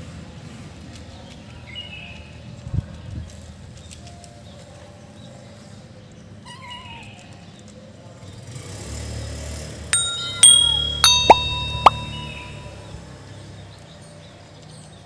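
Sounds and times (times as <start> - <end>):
plinking bell-like music: 10.0 - 13.0.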